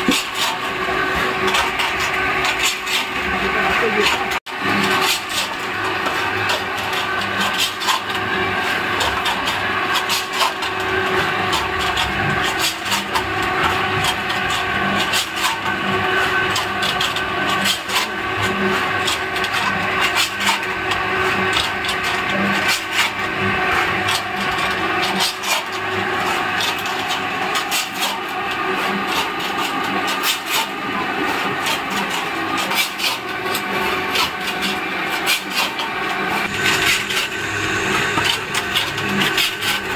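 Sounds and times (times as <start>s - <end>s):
roller grinding and scraping mix: 0.0s - 39.9s
electric motor humming: 36.0s - 39.9s.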